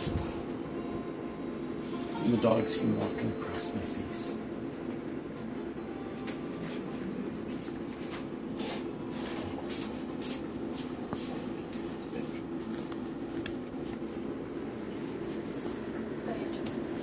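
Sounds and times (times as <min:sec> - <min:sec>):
steady low hum: 0:00.0 - 0:17.0
puppy scratching on bedspread: 0:07.5 - 0:17.0.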